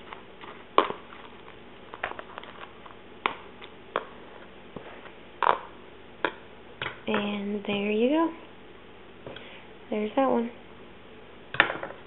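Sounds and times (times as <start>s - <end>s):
food stirred in plastic container: 0.0s - 5.6s.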